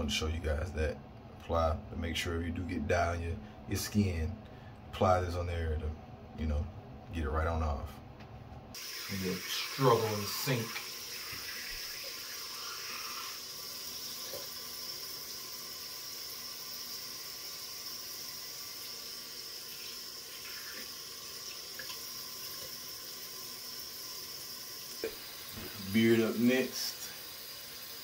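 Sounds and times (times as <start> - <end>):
faucet running into sink: 8.8 - 28.0.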